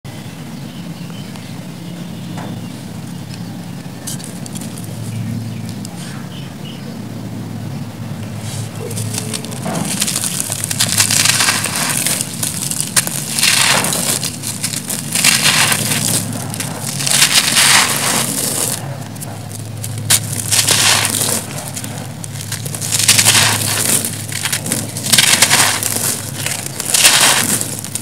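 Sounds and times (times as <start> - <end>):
hands crumbling concrete: 8.6 - 28.0
grit falling onto a pile: 8.9 - 18.9, 19.5 - 28.0.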